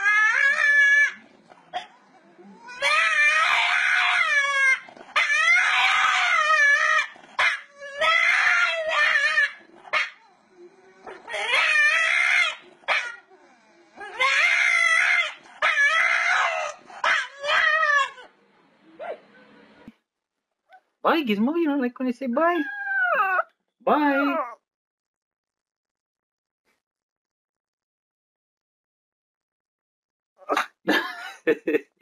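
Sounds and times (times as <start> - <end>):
dog howling: 0.0 - 1.2, 1.8 - 18.3, 22.6 - 24.6.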